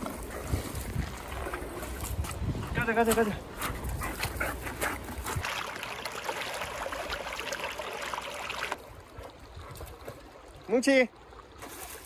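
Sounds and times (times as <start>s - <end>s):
water splashing in stone channel: 5.2s - 12.0s.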